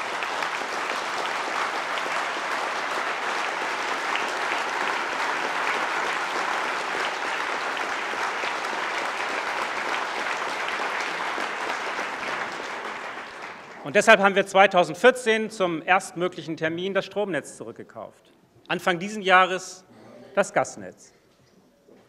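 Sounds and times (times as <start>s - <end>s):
audience applause: 0.0s - 14.2s.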